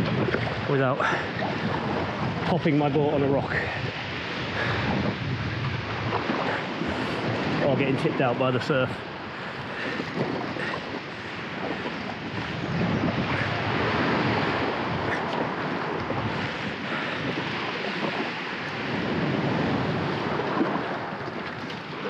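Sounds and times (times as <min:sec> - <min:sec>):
water washing around kayak: 0:00.0 - 0:22.0
wind buffeting microphone: 0:00.0 - 0:22.0.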